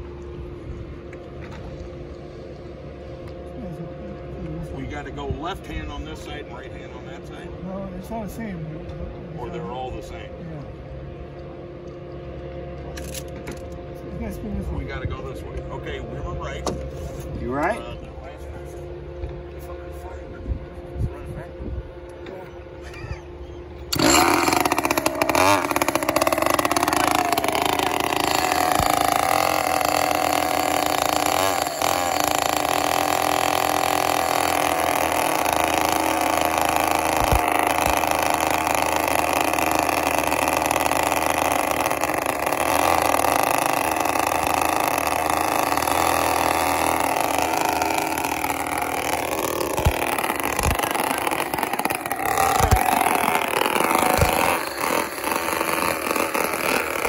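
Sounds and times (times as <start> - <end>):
small two-stroke engines running: 0.0 - 57.0
electric starter whirring: 12.9 - 13.8, 22.9 - 57.0.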